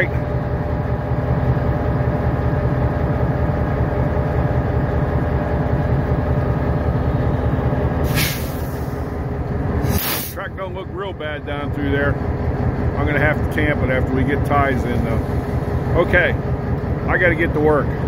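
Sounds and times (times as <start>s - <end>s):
diesel locomotive engine running: 0.0s - 18.0s
sharp hiss of air: 8.0s - 9.0s, 9.8s - 10.4s.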